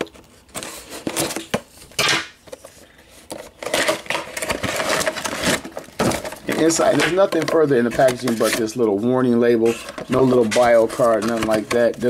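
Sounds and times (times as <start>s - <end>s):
packaging rustling: 0.0s - 12.0s
plastic tray clattering: 3.3s - 8.8s, 9.7s - 12.0s.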